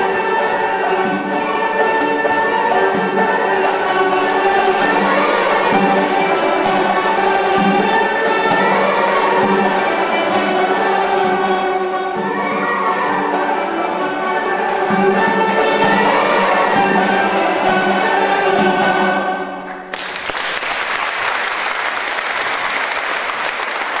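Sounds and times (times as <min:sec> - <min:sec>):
plucked string ensemble playing: 0:00.0 - 0:19.9
audience applause: 0:19.6 - 0:24.0.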